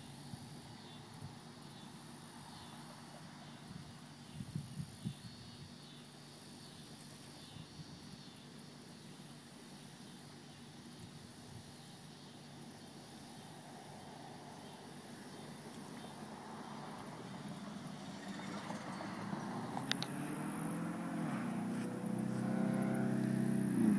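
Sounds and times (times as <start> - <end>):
insects calling: 0.0 - 23.9.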